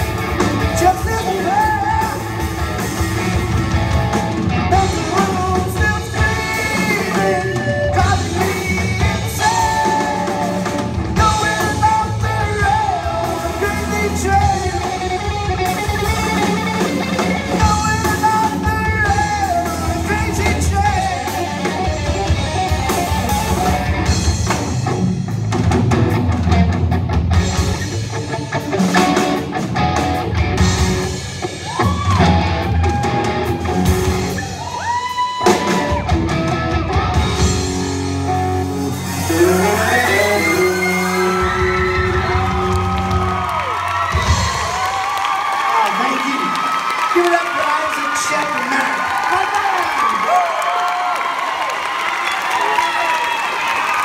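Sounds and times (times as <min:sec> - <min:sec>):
bass guitar: 0:00.0 - 0:45.4
electric guitar: 0:00.0 - 0:45.7
drum kit: 0:00.0 - 0:46.9
person singing: 0:00.7 - 0:02.3, 0:04.7 - 0:16.6, 0:17.5 - 0:23.8, 0:39.1 - 0:43.2.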